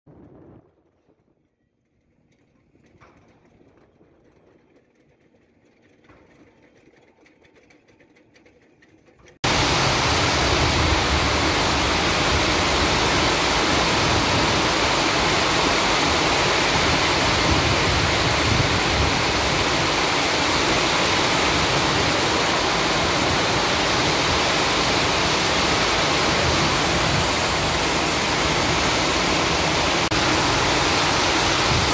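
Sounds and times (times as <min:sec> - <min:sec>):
heavy rain pouring: 0:09.4 - 0:31.9.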